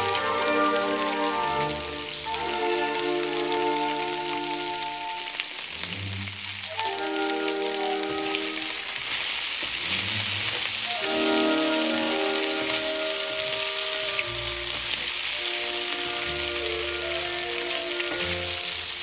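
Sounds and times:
background music with held notes: 0.0s - 9.0s, 10.0s - 19.0s
seafood and peppers sizzling in skillet: 0.0s - 19.0s
wooden spatula stirring: 5.8s - 19.0s.

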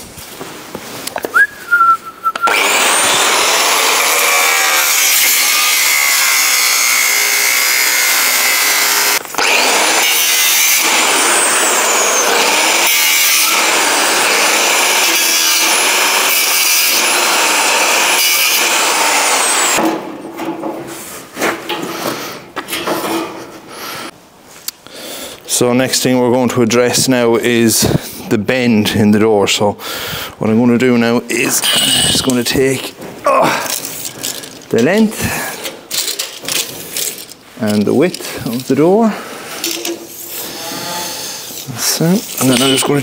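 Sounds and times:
angle grinder cutting steel: 2.4s - 19.8s, 39.6s - 43.0s.

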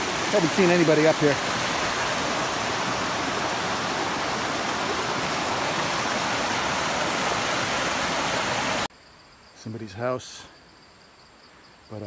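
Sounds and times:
water rushing over rocks: 0.0s - 8.9s.

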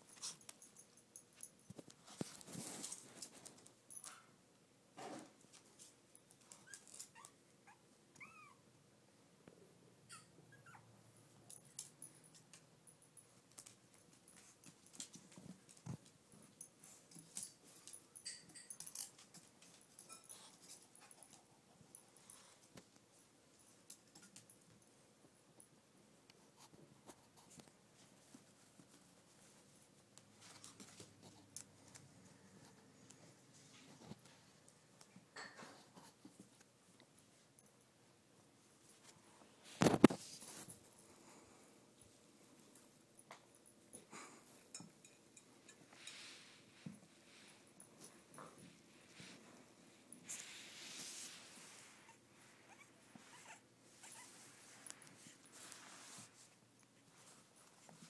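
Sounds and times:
puppy paws clicking on floor: 0.1s - 4.3s, 11.5s - 23.1s, 26.6s - 37.8s.

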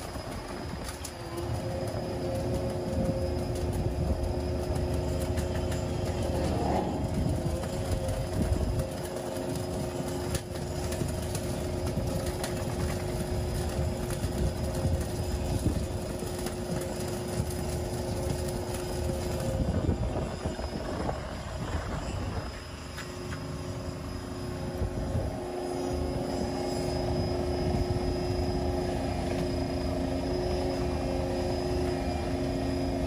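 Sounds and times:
crackle of welding arc: 0.0s - 33.0s
steady electrical hum: 0.0s - 33.0s.

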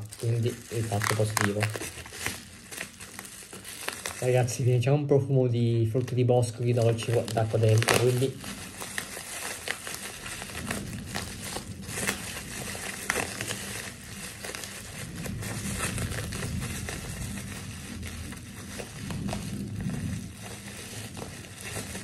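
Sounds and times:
bubble wrap crinkling: 0.0s - 22.0s.

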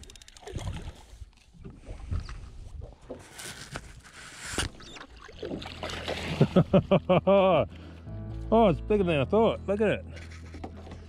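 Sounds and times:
water splashing and swirling: 0.0s - 7.0s.

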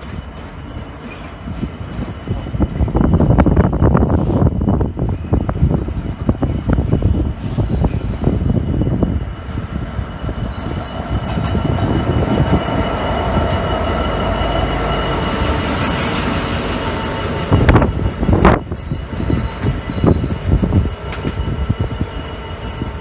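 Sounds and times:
diesel locomotives rumbling past: 0.0s - 23.0s
high wheel squeal: 6.4s - 23.0s.

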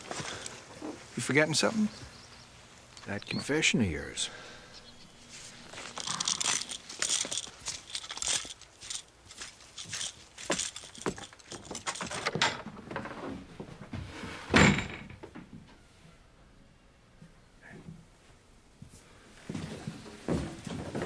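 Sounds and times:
rattling and clicking knocks: 9.8s - 13.2s.

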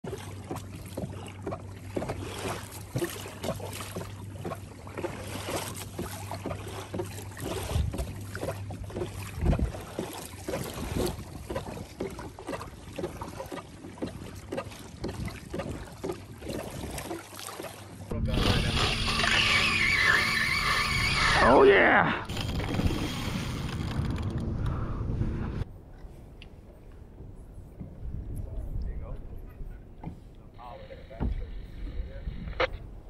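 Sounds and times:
water splashing against kayak hull: 0.0s - 21.5s, 22.3s - 24.4s.

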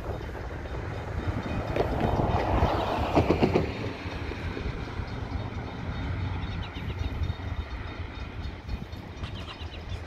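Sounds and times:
freight train rumble: 0.0s - 10.0s.

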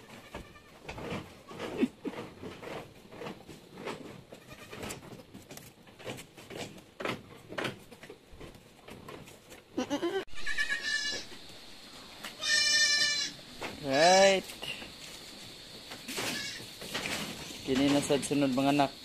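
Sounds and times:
faint rustling and knocking: 0.1s - 9.8s
goats bleating: 4.4s - 4.8s, 9.8s - 11.3s, 12.4s - 14.4s, 16.2s - 16.6s.

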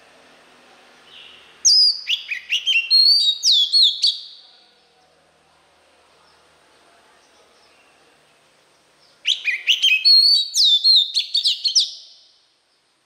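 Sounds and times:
bird whistling song: 1.0s - 4.4s, 9.0s - 12.4s.

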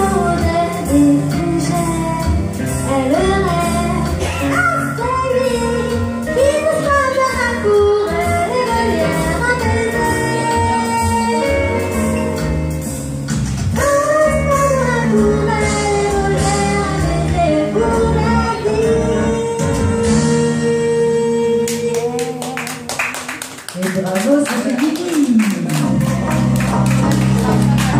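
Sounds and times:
woman singing: 0.0s - 12.0s, 13.8s - 23.0s
steady bass notes: 0.0s - 22.5s, 25.6s - 27.9s
instrumental accompaniment: 0.0s - 23.4s, 25.3s - 27.9s.

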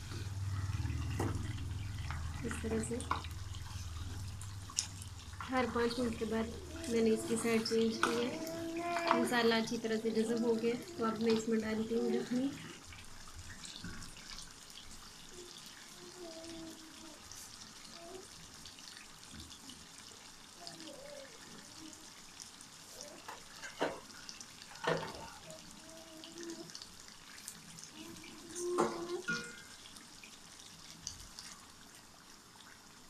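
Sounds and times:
food sizzling in a wok: 26.9s - 31.4s.

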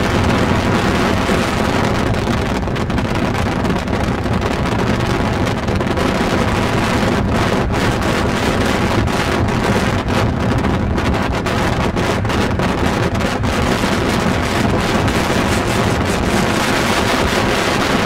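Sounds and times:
car road noise: 0.0s - 18.0s
wind over microphone: 0.0s - 18.0s.

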